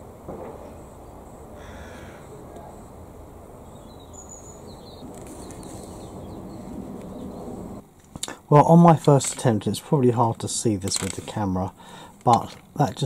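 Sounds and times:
faint outdoor background noise: 0.0 - 13.0
bird calls: 3.6 - 7.8.

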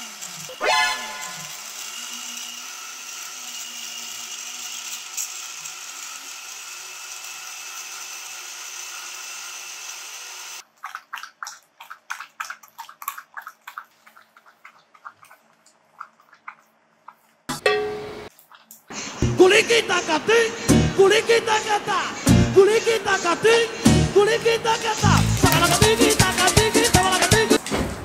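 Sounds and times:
blender running: 0.0 - 10.6
dogs lapping from glass bowls: 10.6 - 17.2.

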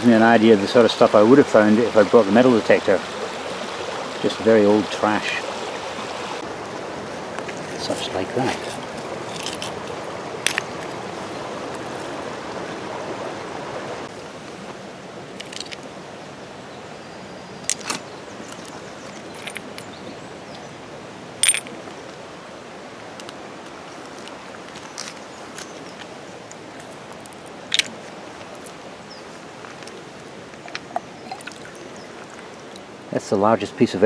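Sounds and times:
river water running over stones: 0.0 - 34.0
pebbles knocking together: 8.5 - 10.9.

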